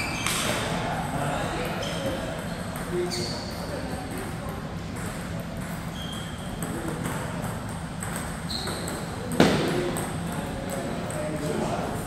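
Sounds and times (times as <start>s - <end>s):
ping pong ball clicking: 5.0s - 11.5s.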